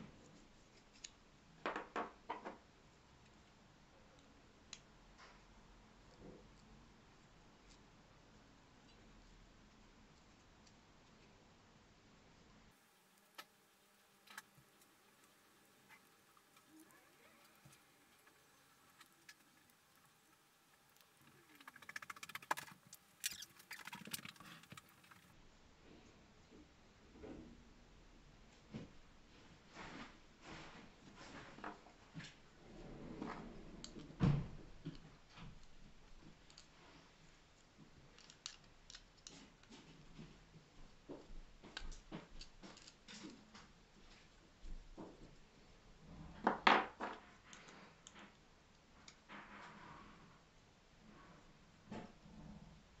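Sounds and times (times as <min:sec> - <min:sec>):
plastic parts clicking and scratching: 0:14.2 - 0:25.4, 0:34.8 - 0:40.0, 0:41.8 - 0:43.7.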